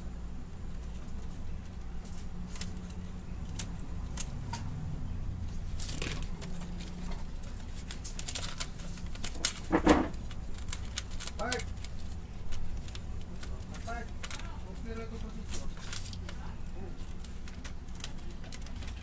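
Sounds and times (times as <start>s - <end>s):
steady low hum: 0.0s - 19.0s
clicks and rustles of handling parts: 5.5s - 19.0s.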